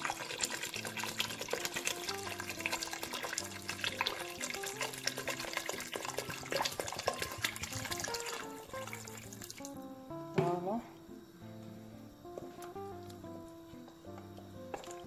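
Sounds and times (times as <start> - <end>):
water pouring into a pot: 0.0 - 9.9, 14.6 - 15.0
soft background music: 0.0 - 15.0.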